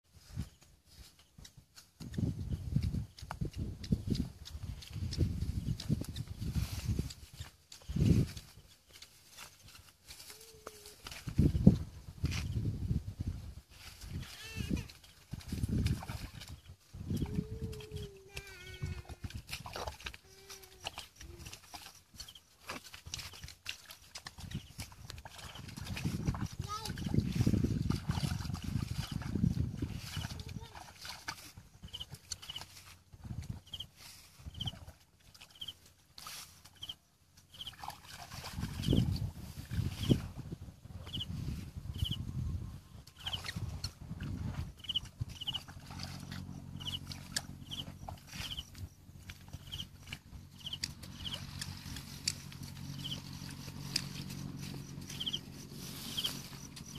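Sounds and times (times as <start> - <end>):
footsteps wading through water and mud: 0.1 - 56.9
steady low hum: 43.6 - 56.9
animal calls: 44.8 - 52.1, 52.8 - 56.9.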